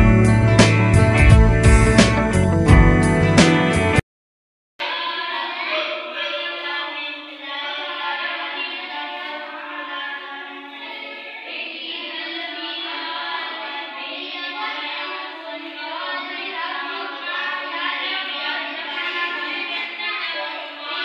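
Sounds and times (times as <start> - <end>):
song with singing: 4.8 - 21.0.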